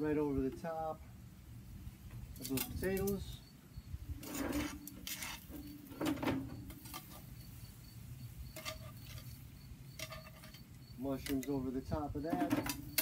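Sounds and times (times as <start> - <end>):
faint insect chirping: 0.0 - 13.0
metal utensil scraping skillet: 8.5 - 9.4, 10.0 - 10.7.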